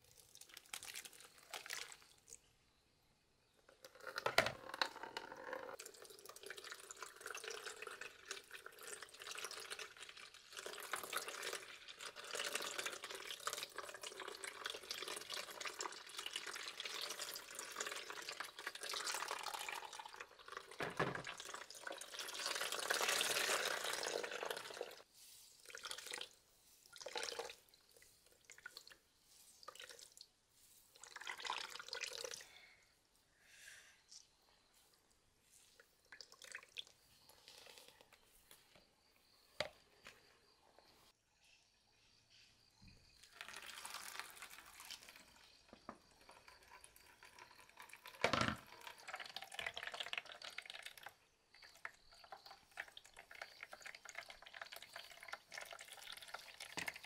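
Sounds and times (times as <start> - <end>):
liquid trickling into basin: 0.0 - 2.4, 3.8 - 25.0, 25.6 - 29.0, 29.6 - 30.3, 31.0 - 32.6, 36.0 - 38.2, 43.2 - 57.0
liquid spurts and drips: 0.0 - 2.5, 5.7 - 32.7, 35.6 - 38.8, 43.2 - 57.0.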